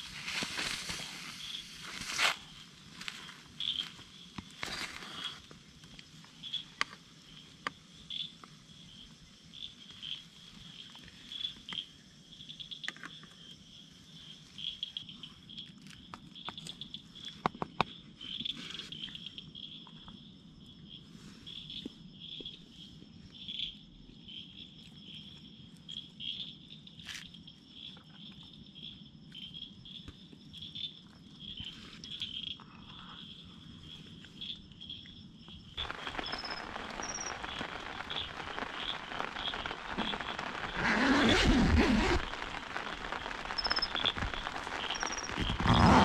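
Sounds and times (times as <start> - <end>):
insects chirping: 0.0 - 46.0
low steady haze: 35.3 - 45.7.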